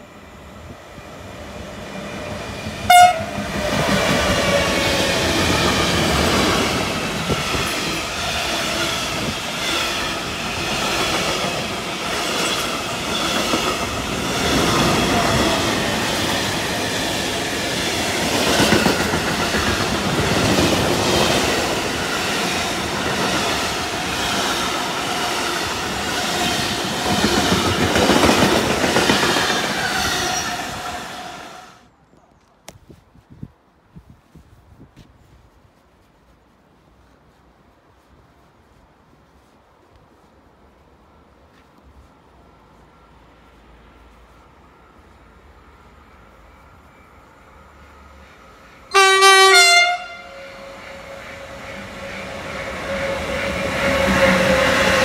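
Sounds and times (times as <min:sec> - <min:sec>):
freight train rushing past: 0:00.0 - 0:31.9, 0:42.1 - 0:55.0
train horn blast: 0:02.9 - 0:03.5, 0:48.9 - 0:51.2.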